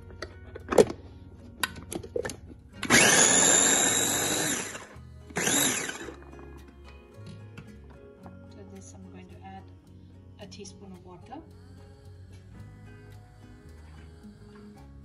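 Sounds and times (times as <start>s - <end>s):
electric food chopper whirring: 2.8s - 6.5s.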